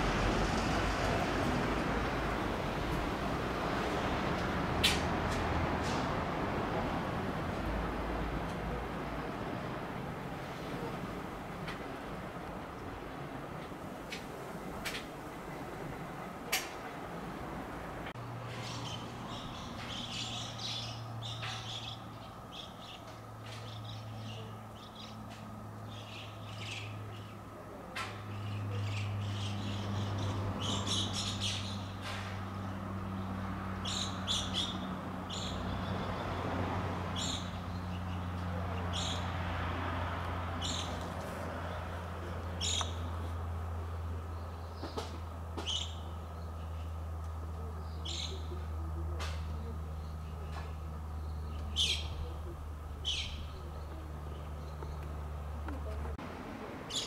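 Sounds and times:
small birds chirping: 18.5s - 36.3s, 41.7s - 56.1s.

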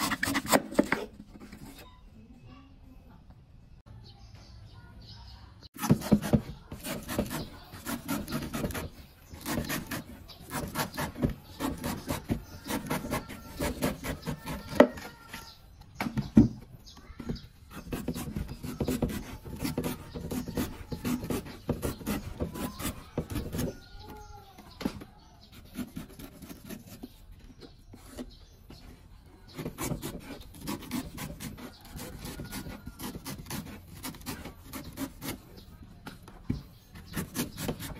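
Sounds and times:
knife slicing coconut skin: 0.0s - 1.1s, 5.8s - 15.2s, 17.7s - 23.9s, 25.5s - 27.2s, 29.6s - 35.4s, 37.0s - 37.9s.

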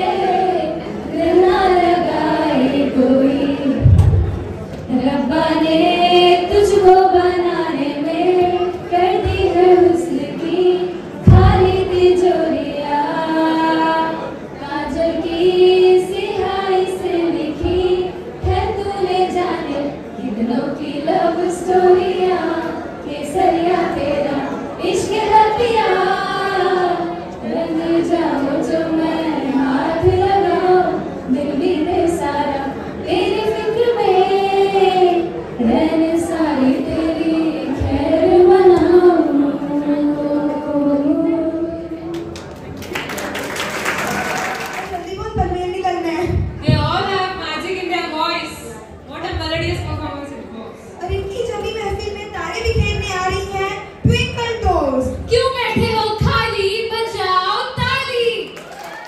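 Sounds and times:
women singing through pa: 0.0s - 42.3s
low thumps: 3.7s - 4.7s, 11.2s - 12.2s.

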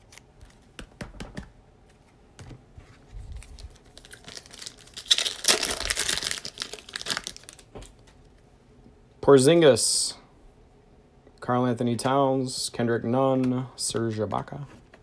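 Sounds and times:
foil wrapper crinkling and tearing: 3.2s - 7.7s.

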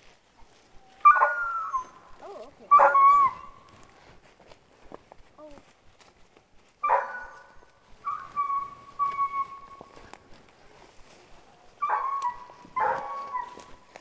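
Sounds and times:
puppy whining: 0.8s - 3.6s, 8.0s - 9.9s, 11.8s - 13.8s.

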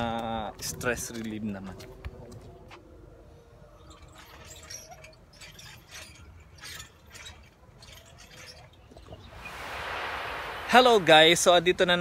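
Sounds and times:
exercise machine creaks and clicks: 3.8s - 9.3s.

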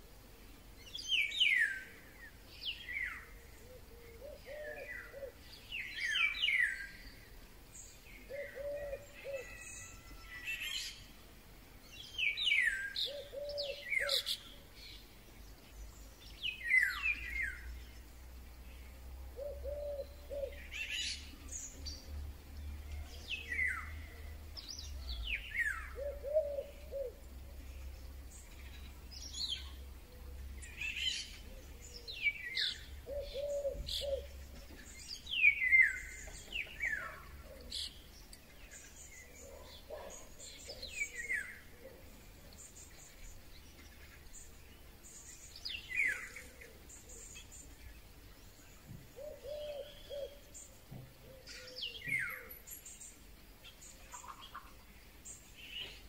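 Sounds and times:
other birds calling: 8.2s - 11.1s, 12.2s - 14.6s, 22.9s - 56.0s.

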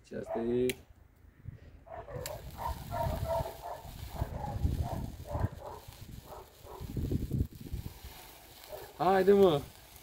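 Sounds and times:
wind buffeting microphone: 1.4s - 8.3s.

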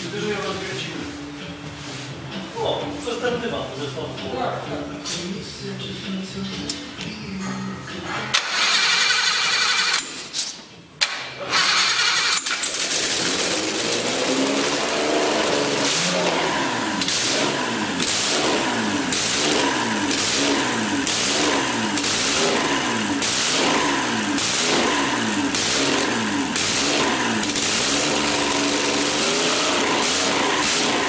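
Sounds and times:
engine starting and revving: 8.3s - 10.2s, 11.0s - 31.0s.

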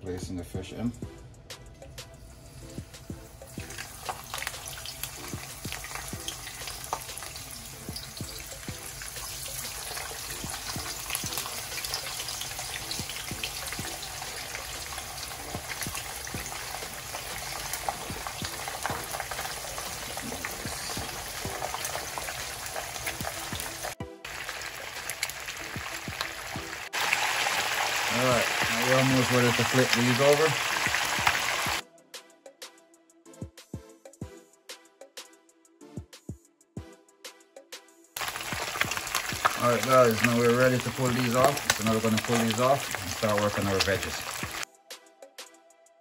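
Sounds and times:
fish sizzling in hot oil: 2.2s - 31.8s, 38.2s - 44.6s
oil bubbling: 2.2s - 31.8s, 38.2s - 44.6s.

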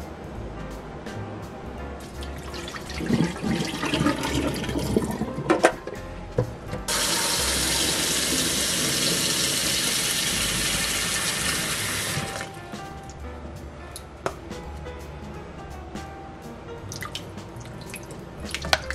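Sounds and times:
water trickling: 2.0s - 5.6s, 16.9s - 18.9s
tap water splashing onto eggs: 17.0s - 18.9s.

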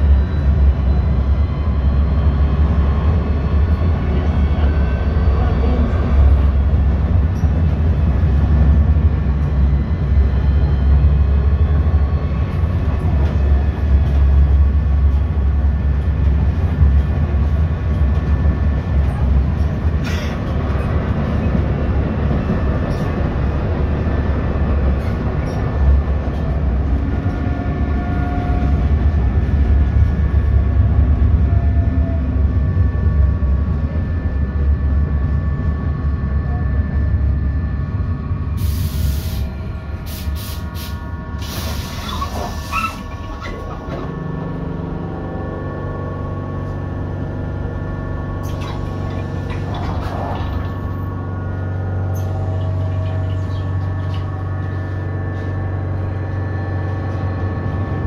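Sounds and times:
tram wheels rumbling on rails: 0.0s - 58.0s.

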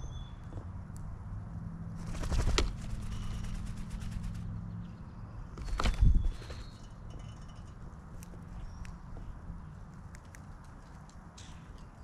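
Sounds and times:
birds flapping wings: 2.0s - 4.6s, 5.6s - 6.7s.

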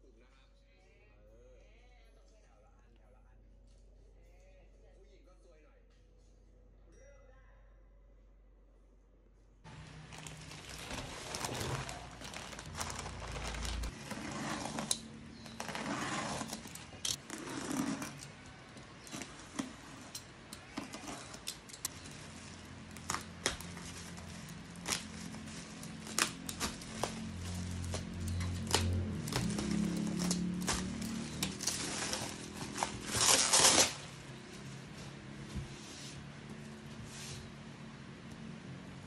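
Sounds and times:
cardboard rustling and clicking: 9.7s - 34.2s
scissors cutting bubble wrap: 9.7s - 34.3s
box cutter slitting packing tape: 10.8s - 34.2s.

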